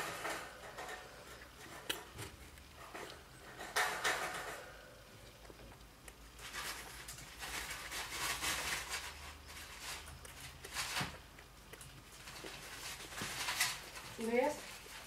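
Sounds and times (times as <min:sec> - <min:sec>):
animal chewing: 0:00.0 - 0:15.0
paper rustles and crackles: 0:06.4 - 0:11.2.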